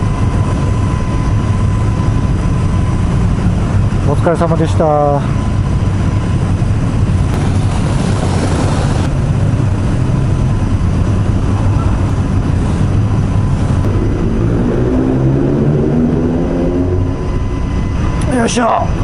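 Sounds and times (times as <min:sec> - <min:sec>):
low rumble of engines: 0:00.0 - 0:19.0
engine rising in pitch: 0:07.3 - 0:18.3.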